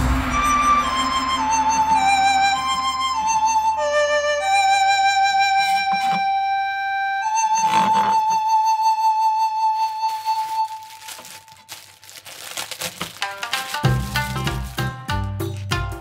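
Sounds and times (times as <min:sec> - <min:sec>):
flute playing long notes: 0:00.0 - 0:11.7.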